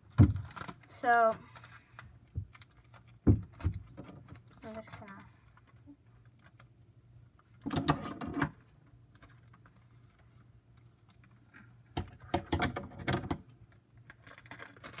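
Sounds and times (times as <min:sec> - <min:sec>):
packing tape pulled off roll: 0:00.1 - 0:01.8, 0:14.0 - 0:15.0.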